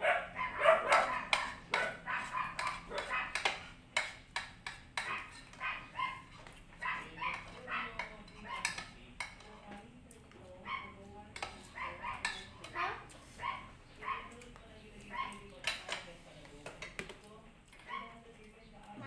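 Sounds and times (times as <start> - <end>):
spoons clinking on plates: 0.9 - 9.9, 11.3 - 12.9, 15.3 - 17.9.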